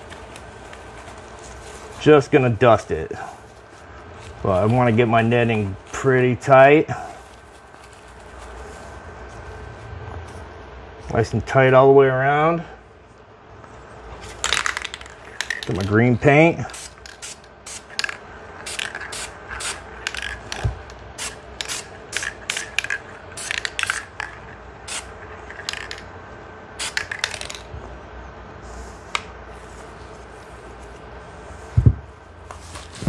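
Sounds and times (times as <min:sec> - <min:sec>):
aerosol spray paint bursts: 0:16.7 - 0:18.0, 0:18.7 - 0:19.9, 0:21.2 - 0:22.8, 0:24.9 - 0:25.2, 0:26.8 - 0:27.4.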